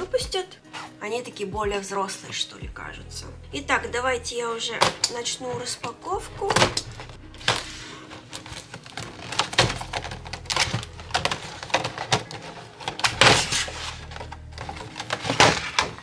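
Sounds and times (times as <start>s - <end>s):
knife cutting plastic packaging: 6.4s - 16.0s
plastic packaging crinkling: 6.5s - 16.0s.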